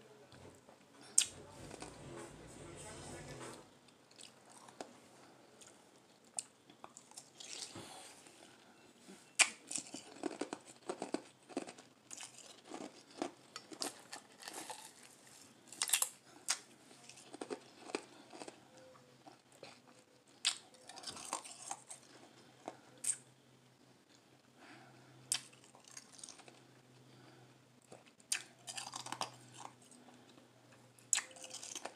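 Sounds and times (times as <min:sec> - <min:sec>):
ice crunching while chewed: 0:05.6 - 0:08.7, 0:09.3 - 0:23.2, 0:25.3 - 0:31.9.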